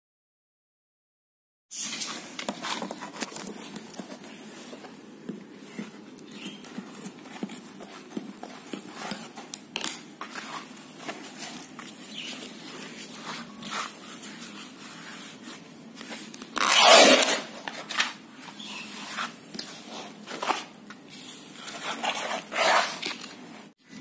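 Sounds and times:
canvas scraping and rustling: 0:10.3 - 0:20.7, 0:21.8 - 0:23.8
canvas ripping: 0:16.5 - 0:17.7.

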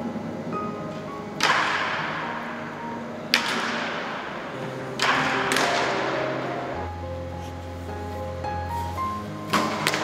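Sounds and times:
bat cracking ball: 0:01.4 - 0:02.6, 0:03.3 - 0:06.2.

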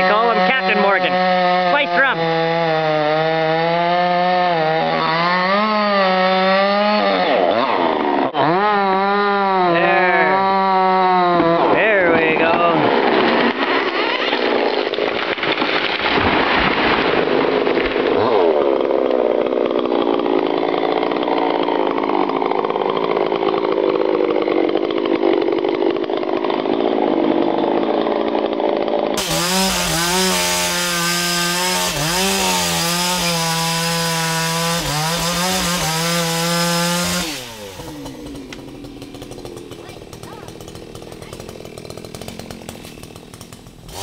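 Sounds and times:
chainsaws running at high revs: 0:00.0 - 0:44.0.

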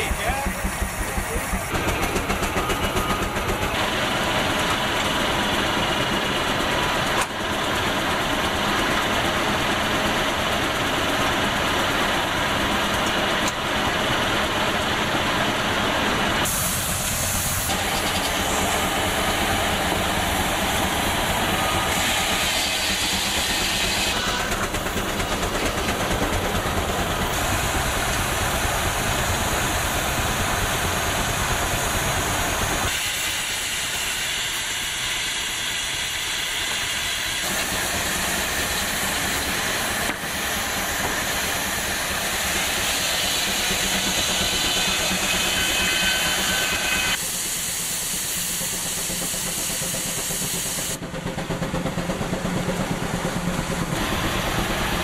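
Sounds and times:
steam hissing: 0:00.0 - 0:07.0, 0:16.1 - 0:51.3.

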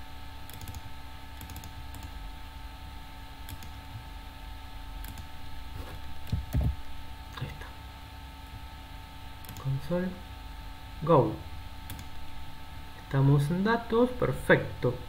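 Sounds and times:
steady background hum: 0:00.0 - 0:15.0
mouse and keyboard clicks: 0:05.0 - 0:06.8.

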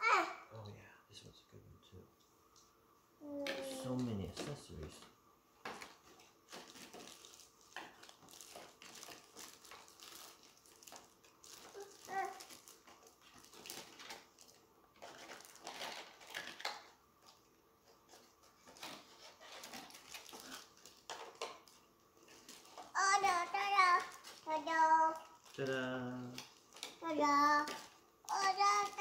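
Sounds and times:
plastic bags crinkling: 0:05.7 - 0:16.9, 0:18.1 - 0:24.5, 0:25.1 - 0:29.0.

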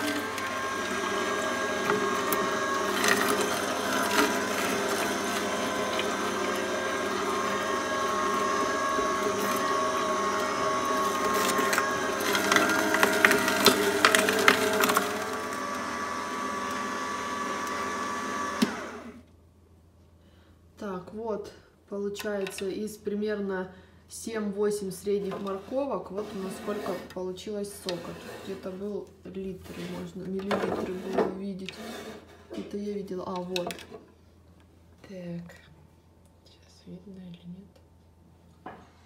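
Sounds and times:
juicer whining: 0:00.0 - 0:19.3.

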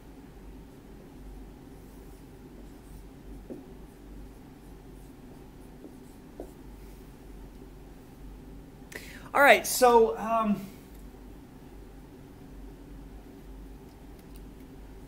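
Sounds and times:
marker knocking on board: 0:03.4 - 0:03.7, 0:05.8 - 0:06.6.

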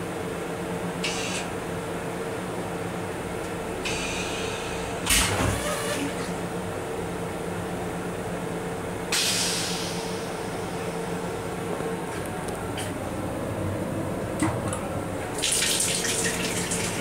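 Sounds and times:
rail car hum: 0:00.0 - 0:15.5
toilet flush air rush: 0:03.8 - 0:06.3, 0:15.3 - 0:17.0.

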